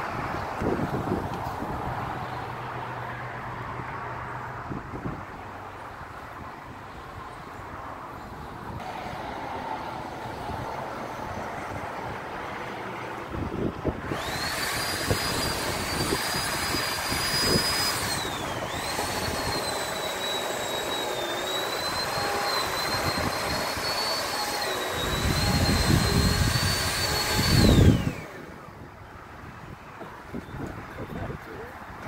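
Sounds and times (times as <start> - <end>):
chainsaw cutting wood: 14.0 - 28.7.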